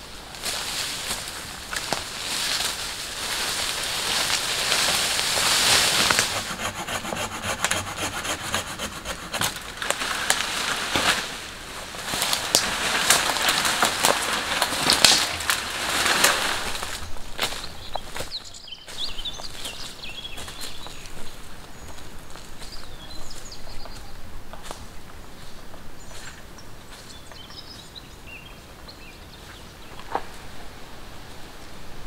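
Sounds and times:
branches rustling: 0.0s - 22.8s
hand saw rasping wood: 5.8s - 10.0s
wood cracking: 12.3s - 17.6s.

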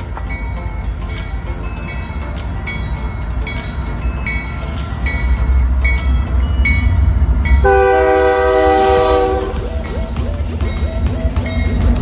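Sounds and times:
locomotive bell ringing: 0.0s - 12.0s
locomotive engine rumble: 0.0s - 12.0s
locomotive air horn blast: 7.6s - 10.6s.

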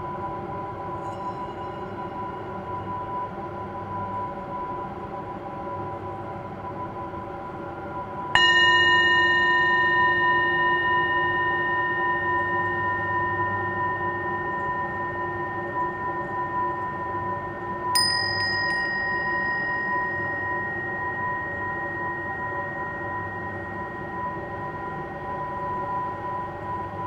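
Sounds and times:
ambient music drone: 0.0s - 27.0s
struck bell-like metal tone: 0.8s - 3.4s, 8.3s - 27.0s.

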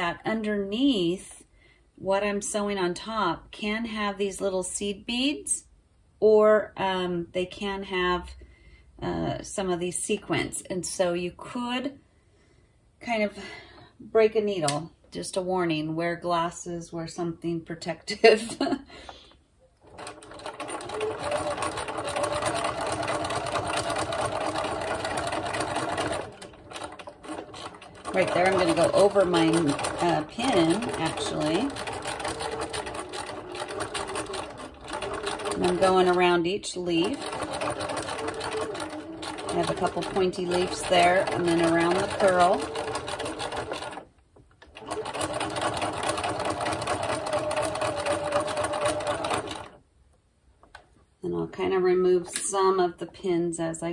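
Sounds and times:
sewing machine stitching: 19.8s - 49.8s.

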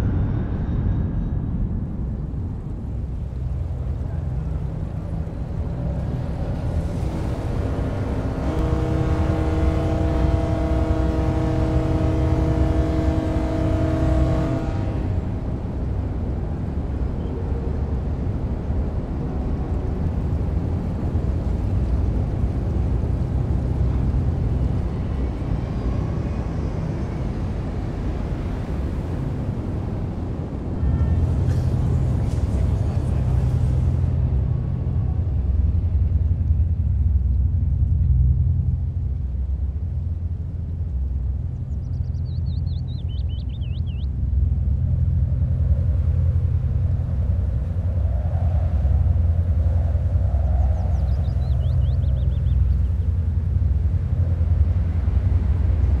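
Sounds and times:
traffic rumble: 0.0s - 56.0s
steady pitched tone: 2.9s - 17.1s.

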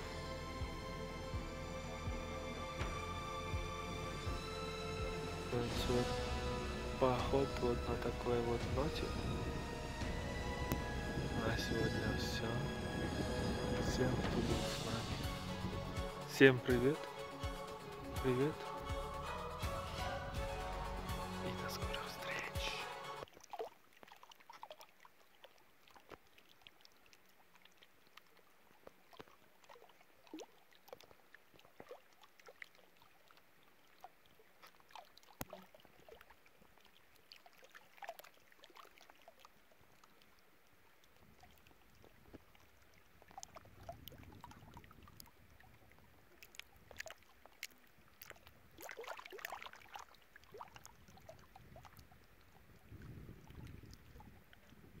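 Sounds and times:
low rumble: 0.0s - 23.2s
small waves lapping: 2.1s - 55.0s.

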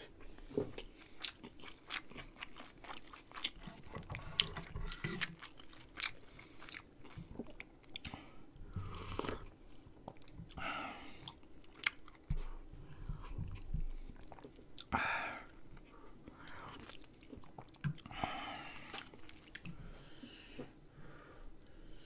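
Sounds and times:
wet chewing and smacking: 0.7s - 8.3s, 9.0s - 19.8s
slurping soup: 8.8s - 9.5s.

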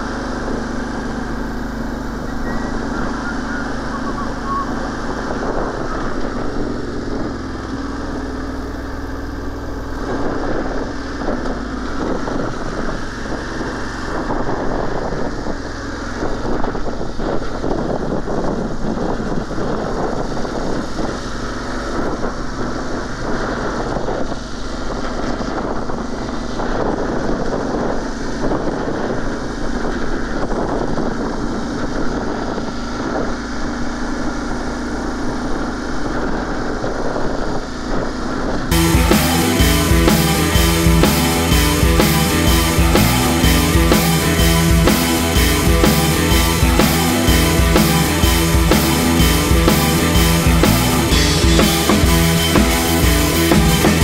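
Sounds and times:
wind buffeting microphone: 0.0s - 39.0s
motorcycle engine running: 0.0s - 54.0s.

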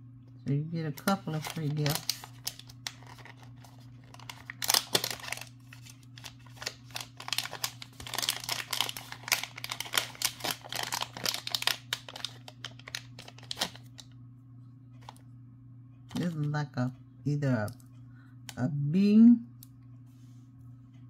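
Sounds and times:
steady low hum: 0.0s - 21.0s
packaging bag crinkling: 1.0s - 14.0s.

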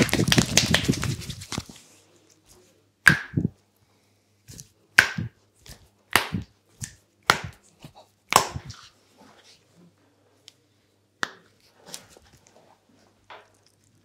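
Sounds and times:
hands slapping skin: 0.0s - 1.7s, 4.5s - 7.7s, 8.3s - 8.8s.

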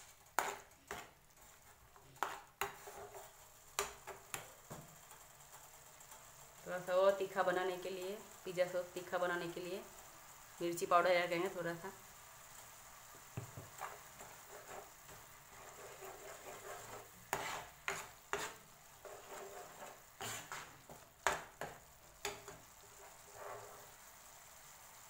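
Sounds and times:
spoon scraping a pan: 0.0s - 6.4s, 13.3s - 24.2s
faint sizzle of simmering sauce: 0.0s - 25.0s.

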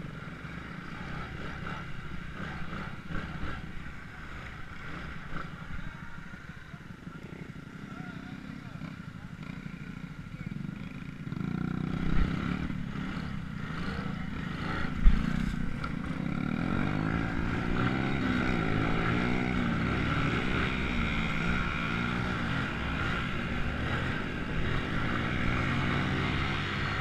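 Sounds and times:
atv engines revving: 0.0s - 27.0s.

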